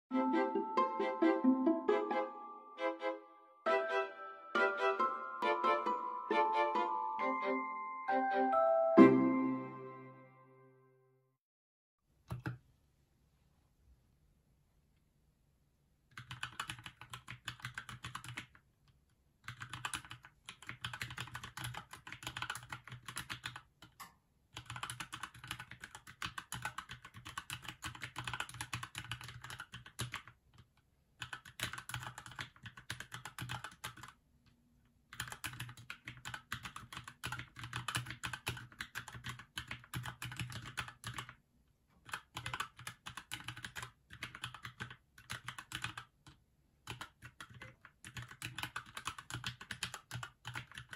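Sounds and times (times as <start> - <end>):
mechanical keyboard typing: 12.3 - 12.6, 16.1 - 18.6, 19.4 - 24.0, 24.6 - 34.2, 35.1 - 41.4, 42.0 - 50.9.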